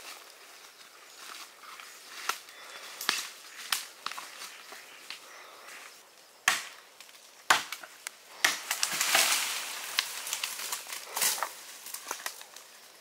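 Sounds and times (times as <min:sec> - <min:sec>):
blade chopping wooden branch: 0:06.4 - 0:06.8, 0:07.5 - 0:09.4
branch and leaves rustling: 0:06.9 - 0:13.0.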